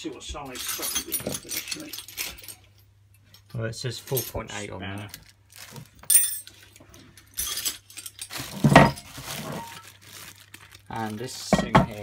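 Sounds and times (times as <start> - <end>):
metal parts clinking: 0.5 - 5.4, 6.0 - 10.3
plastic packaging rustling: 3.9 - 12.0.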